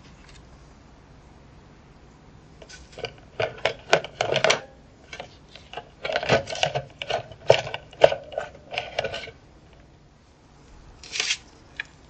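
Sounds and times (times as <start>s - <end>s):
wire frame clinking on plastic: 2.6s - 9.4s.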